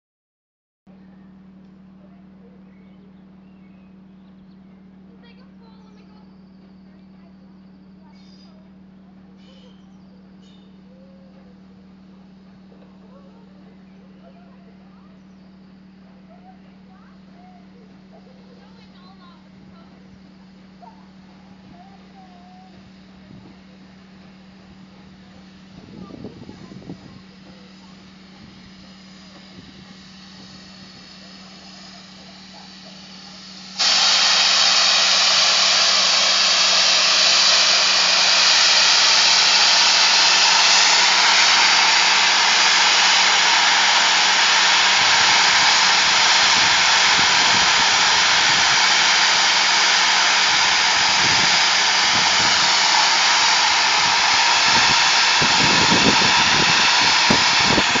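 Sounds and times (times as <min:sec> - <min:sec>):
steam locomotive hissing steam: 0:20.2 - 0:58.0.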